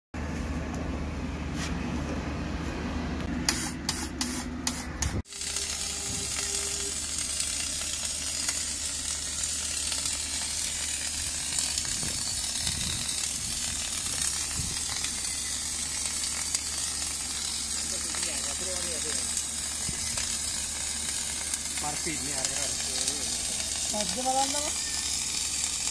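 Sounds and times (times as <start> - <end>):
welding arc sizzling: 3.2 - 25.9.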